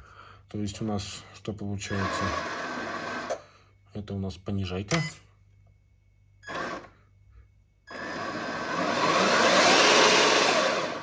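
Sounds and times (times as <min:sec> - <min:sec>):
rc truck electric motor running: 0:07.9 - 0:11.0.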